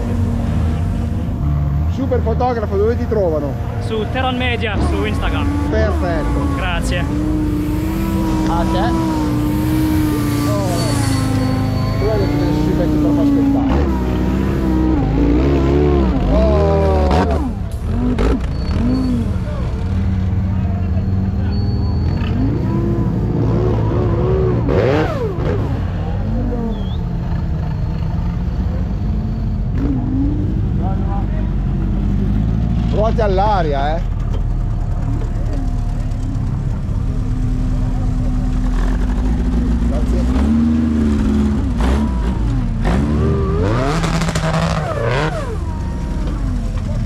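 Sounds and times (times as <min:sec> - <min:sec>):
buggy engine revving: 0:00.0 - 0:47.0.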